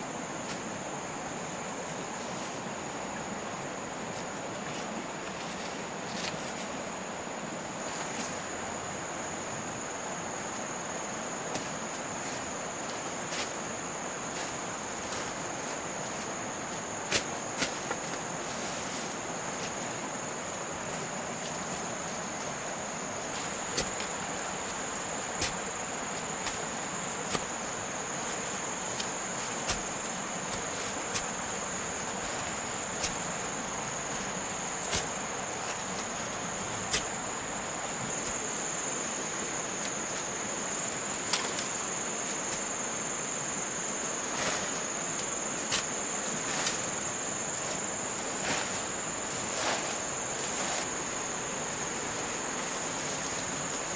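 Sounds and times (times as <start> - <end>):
background hiss: 0.0 - 53.9
insects droning: 0.0 - 53.9.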